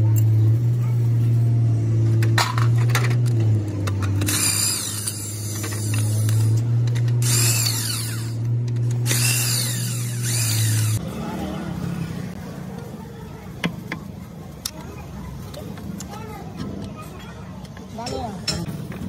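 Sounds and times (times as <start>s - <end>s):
loud low hum: 0.0s - 12.3s
impact wrench whirring: 4.2s - 11.0s.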